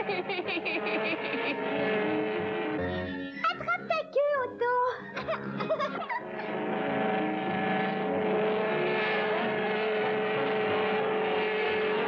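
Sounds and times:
propeller plane engine drone: 6.2s - 12.0s.

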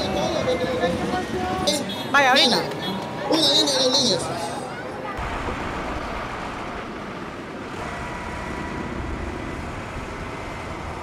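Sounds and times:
traffic engines rumbling: 0.0s - 11.0s.

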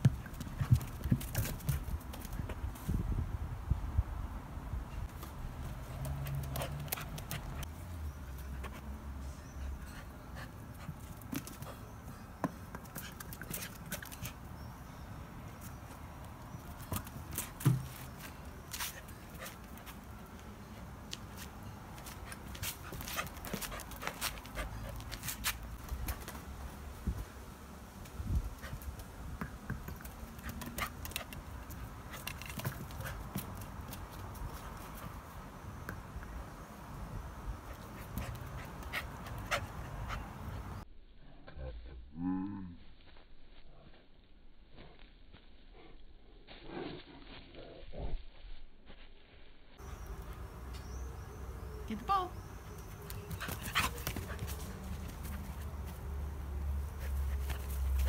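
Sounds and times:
puppy panting: 52.7s - 55.7s.

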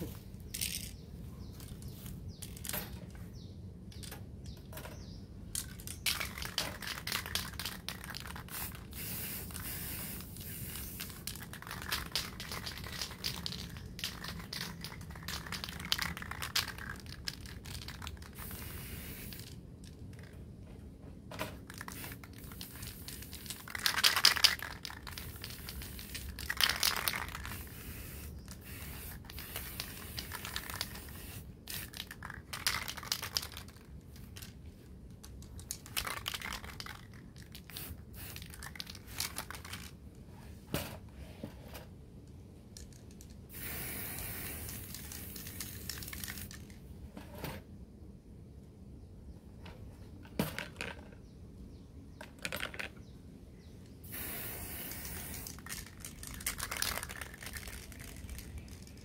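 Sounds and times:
aerosol spray can hissing: 8.4s - 11.2s, 18.3s - 19.4s, 27.4s - 31.9s, 43.5s - 45.9s, 54.0s - 56.0s.

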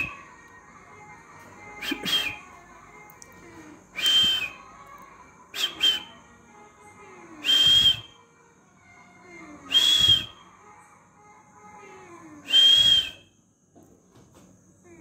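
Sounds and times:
breathy whistles: 0.0s - 0.3s, 1.8s - 2.5s, 3.9s - 4.8s, 5.5s - 6.2s, 7.4s - 8.2s, 9.7s - 10.5s, 12.4s - 13.4s.

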